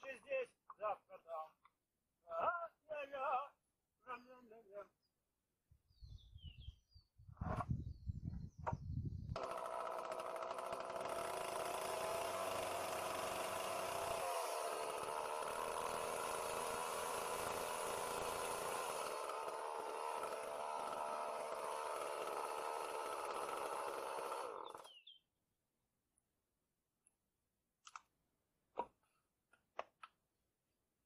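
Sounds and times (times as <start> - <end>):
chainsaw cutting wood: 9.3 - 25.0.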